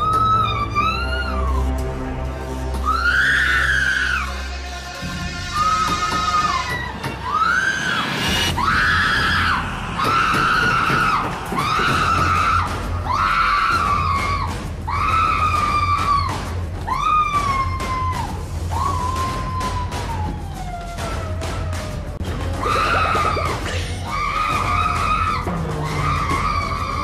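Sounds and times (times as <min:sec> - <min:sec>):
woman screaming in terror: 0:22.6 - 0:27.0.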